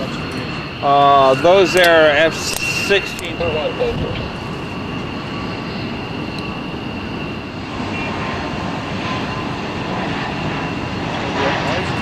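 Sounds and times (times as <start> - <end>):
distant jet engine rumble: 0.0 - 12.0
faint turbine whine: 0.0 - 12.0.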